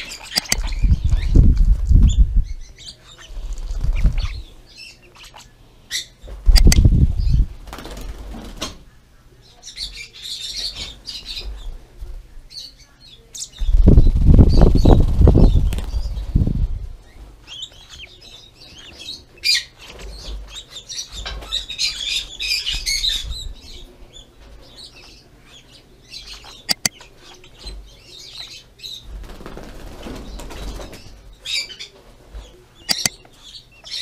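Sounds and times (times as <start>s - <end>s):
lovebirds chirping: 0.0s - 7.6s, 12.4s - 29.4s, 30.0s - 34.0s
sharp clicks: 0.3s - 0.7s, 6.5s - 6.9s, 26.7s - 27.0s, 32.9s - 33.3s.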